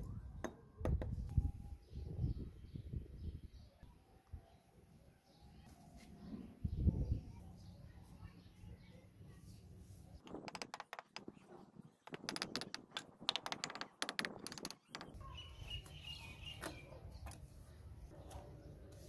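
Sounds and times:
trowel tapping bricks: 0:12.0 - 0:15.2.

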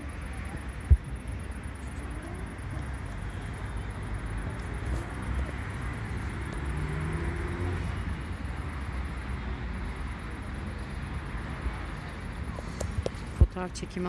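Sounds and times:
bus passing: 0:01.8 - 0:14.0
passing cars rumbling: 0:02.4 - 0:13.4.

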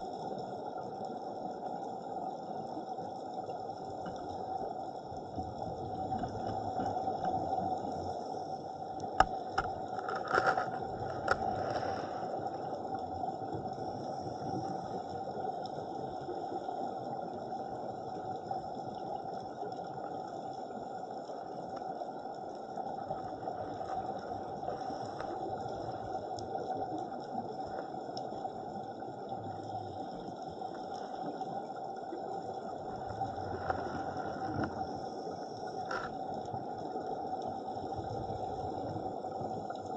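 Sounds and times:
underwater watery hiss: 0:10.7 - 0:18.8, 0:20.8 - 0:39.9.

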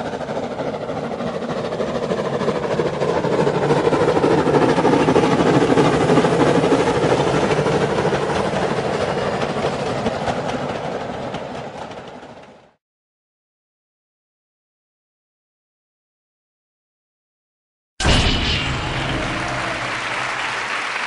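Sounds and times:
steady rumbling noise: 0:18.0 - 0:21.0.

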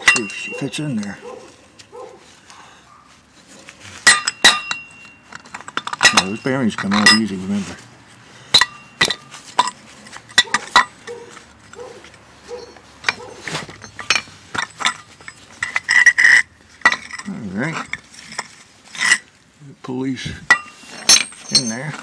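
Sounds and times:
metal parts clinking and knocking: 0:00.0 - 0:01.2, 0:04.0 - 0:07.5, 0:08.5 - 0:19.3, 0:20.5 - 0:22.0.

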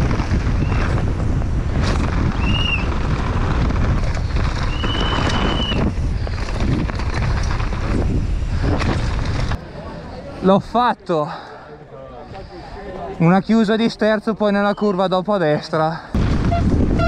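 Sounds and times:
wind buffeting microphone: 0:00.0 - 0:09.6, 0:16.2 - 0:17.0
tyres rumbling and bike rattling: 0:00.0 - 0:10.4.

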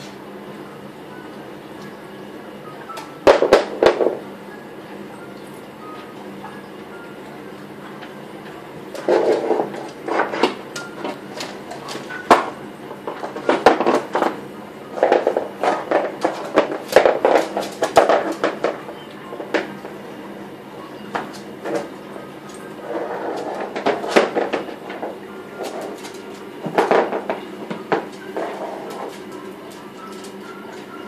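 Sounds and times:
dog scuffling on laminate floor: 0:08.9 - 0:12.4, 0:22.5 - 0:27.3, 0:27.9 - 0:30.8.

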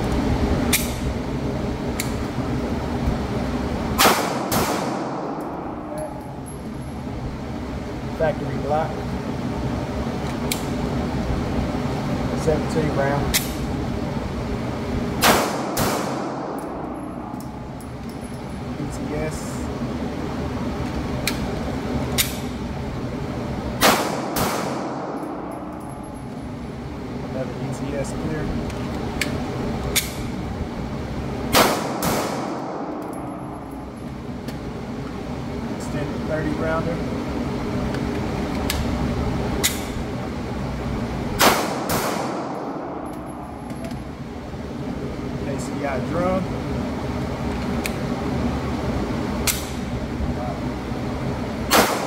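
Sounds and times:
steady background hum: 0:00.0 - 0:52.0
ventilation rushing: 0:00.0 - 0:52.0
pistol metallic clicks: 0:00.7 - 0:01.1, 0:13.3 - 0:13.6, 0:39.6 - 0:40.0, 0:49.4 - 0:49.8
pistol shots ringing indoors: 0:04.0 - 0:06.6, 0:15.2 - 0:18.2, 0:23.8 - 0:26.2, 0:31.5 - 0:33.9, 0:41.4 - 0:44.1, 0:51.7 - 0:52.0.

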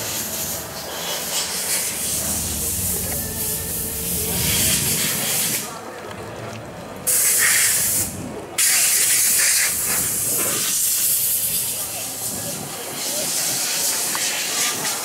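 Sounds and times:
rain hissing: 0:00.1 - 0:05.7.

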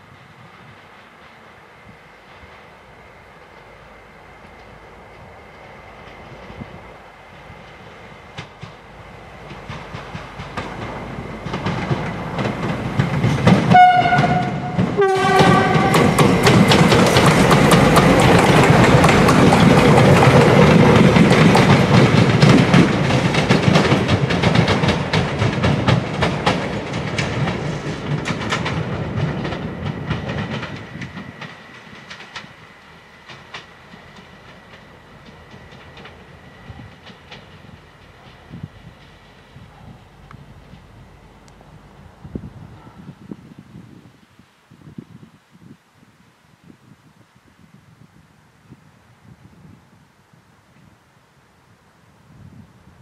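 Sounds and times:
train passing: 0:00.0 - 0:44.0
wheels clicking over rail joints: 0:04.4 - 0:42.9
train horn blasts: 0:13.6 - 0:16.6.

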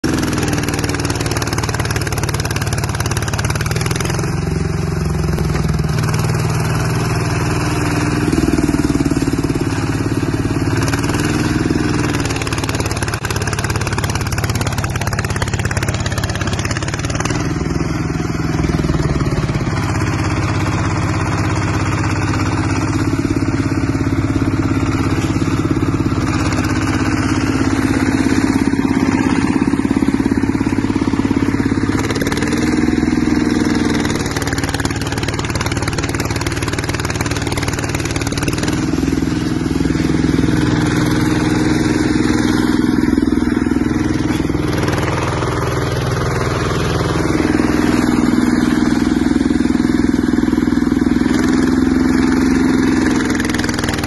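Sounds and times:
diesel tractor engine running: 0:00.0 - 0:54.0.

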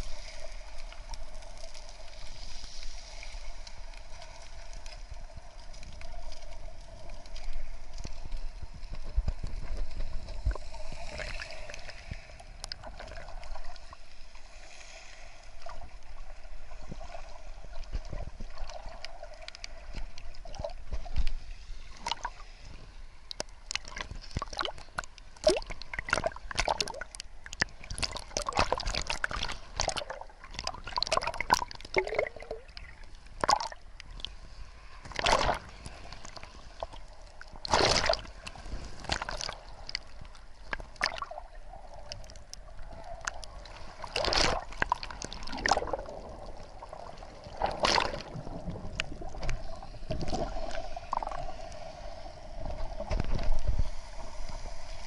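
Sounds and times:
sea waves sloshing and splashing: 0:00.0 - 0:55.0
sharp splashes and knocks: 0:35.1 - 0:35.7, 0:37.6 - 0:38.3, 0:44.1 - 0:46.0, 0:47.7 - 0:48.4.

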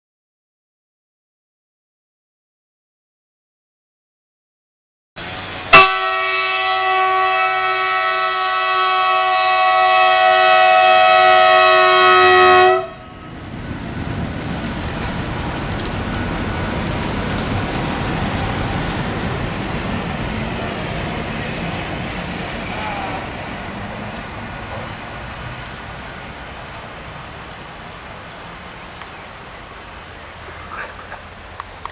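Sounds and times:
locomotive rolling noise: 0:05.2 - 0:31.9
locomotive horn: 0:05.7 - 0:13.3.

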